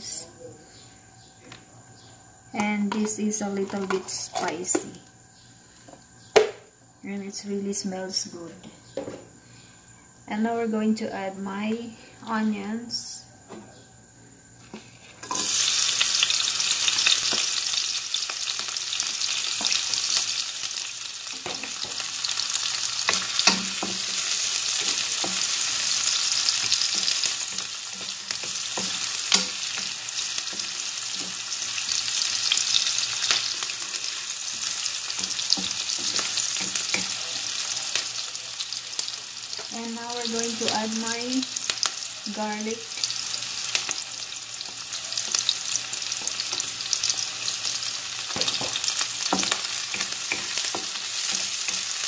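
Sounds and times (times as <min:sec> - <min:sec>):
onions sizzling in hot oil: 0:14.7 - 0:52.0.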